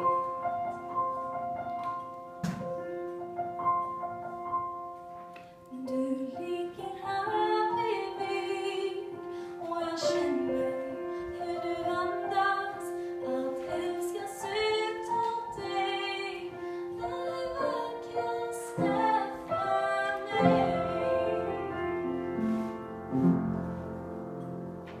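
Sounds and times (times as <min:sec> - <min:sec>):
upright piano: 0:00.0 - 0:25.0
woman singing slow song: 0:05.7 - 0:21.9.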